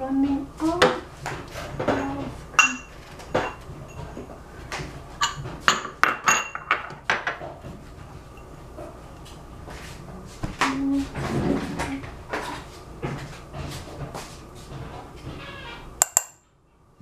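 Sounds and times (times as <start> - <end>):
utensil clinking against pots: 1.8 - 4.3, 5.2 - 7.4.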